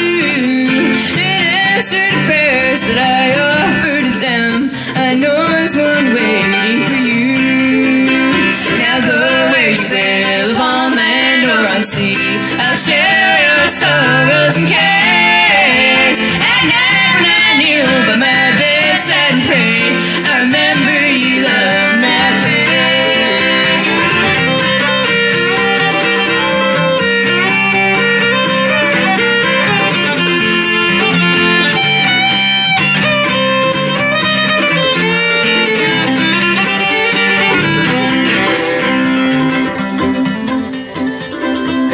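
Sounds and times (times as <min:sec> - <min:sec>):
fiddle melody: 0:00.0 - 0:41.9
mandolin: 0:00.0 - 0:41.9
strummed guitar: 0:00.0 - 0:41.9.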